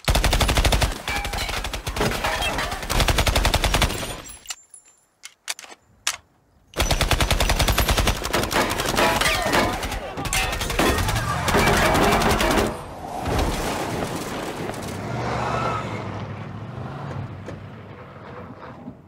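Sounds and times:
rapid automatic gunfire: 0.0s - 2.1s, 2.7s - 4.0s, 6.8s - 12.6s.

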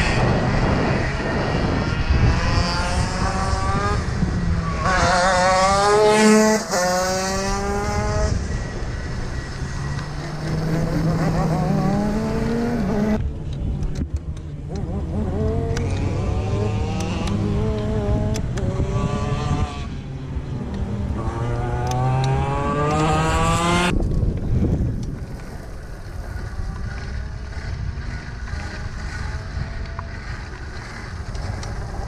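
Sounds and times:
kart engine revving: 0.0s - 13.2s, 14.6s - 24.0s
wheels rolling: 0.0s - 32.0s
wind noise: 0.0s - 32.0s.

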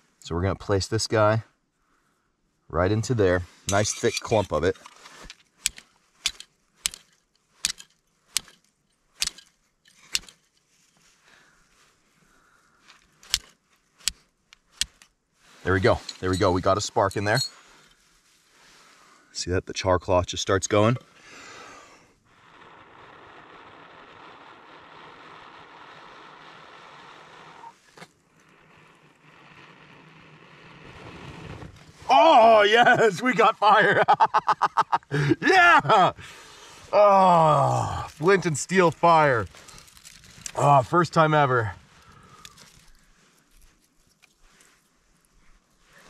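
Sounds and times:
fire striker scraping flint: 3.4s - 19.0s, 20.9s - 32.1s, 37.7s - 46.0s
person blowing on tinder: 21.3s - 32.1s.

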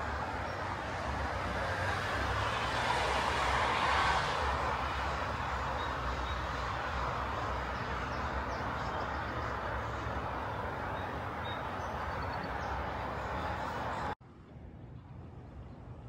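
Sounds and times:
road traffic rushing hiss: 0.0s - 14.2s.

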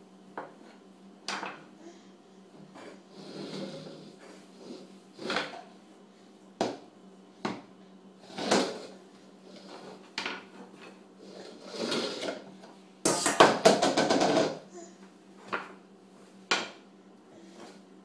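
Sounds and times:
pans and utensils clattering: 13.1s - 14.6s.

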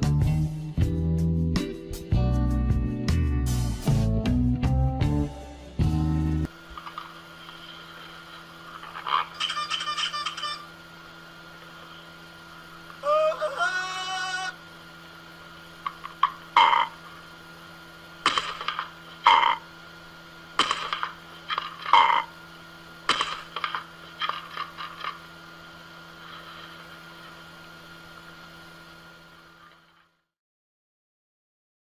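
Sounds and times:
faint hum: 5.0s - 30.3s.

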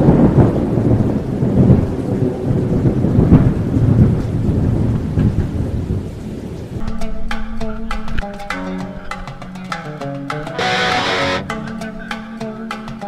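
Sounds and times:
steady rain: 0.0s - 6.8s.

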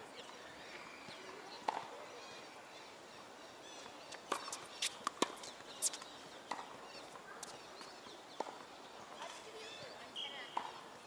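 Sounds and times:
tennis ball striking rackets: 1.6s - 1.9s, 4.3s - 6.8s, 8.4s - 8.6s, 10.5s - 10.8s.

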